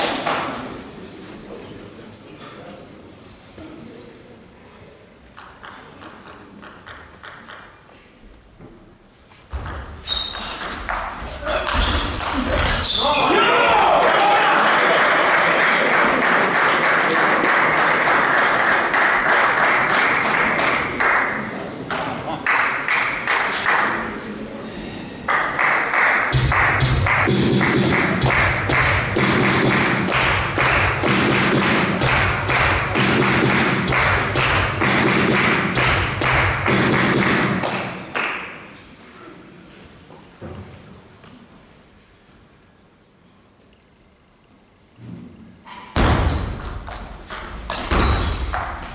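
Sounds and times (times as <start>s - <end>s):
crowd cheering: 12.4s - 21.0s
crowd applauding: 13.7s - 21.5s, 25.3s - 38.4s
rhythmic beat: 26.3s - 38.0s.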